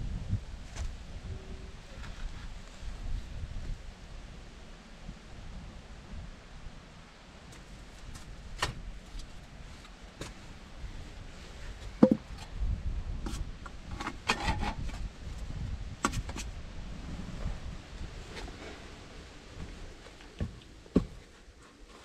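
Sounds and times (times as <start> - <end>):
tools clattering on wooden logs: 12.0 - 12.5.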